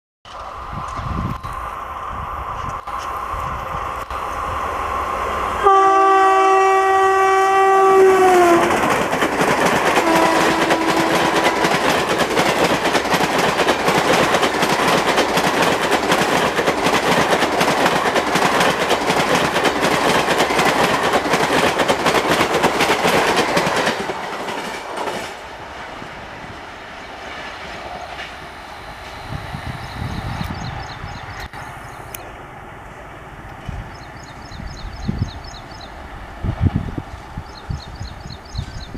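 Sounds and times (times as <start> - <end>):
receding train rumble: 0.3 - 38.9
locomotive horn: 5.6 - 8.8, 10.0 - 11.8
train wheel clatter over rail joints: 8.6 - 25.5.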